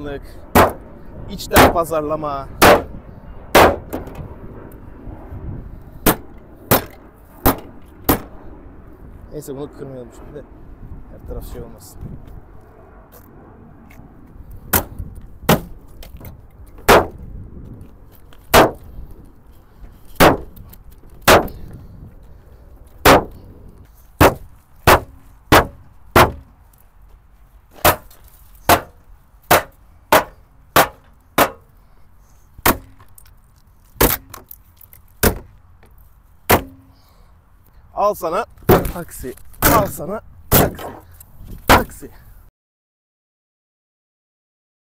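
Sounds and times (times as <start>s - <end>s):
hammer striking car body: 0.6s - 0.8s, 2.6s - 2.9s, 3.6s - 4.1s, 6.1s - 8.2s, 14.7s - 15.7s, 20.2s - 20.5s, 21.2s - 21.6s, 23.0s - 23.4s, 24.2s - 26.5s, 28.7s - 31.6s, 35.2s - 35.5s, 36.5s - 36.8s, 40.5s - 41.0s.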